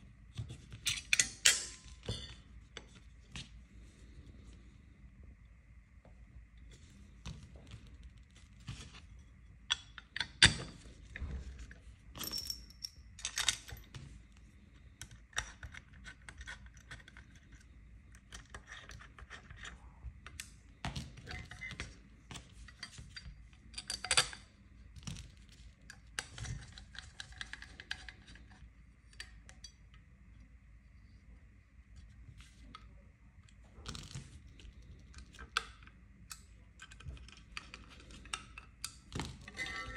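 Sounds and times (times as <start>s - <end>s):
metal parts clicking and clinking: 0.8s - 3.0s, 9.7s - 13.9s, 22.6s - 24.5s.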